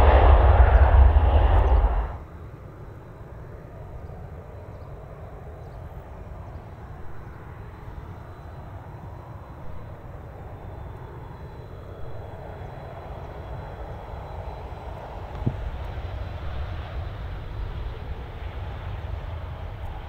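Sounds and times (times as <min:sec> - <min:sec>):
faint high whine: 0:00.0 - 0:20.0
jet engine rumble: 0:00.0 - 0:20.0.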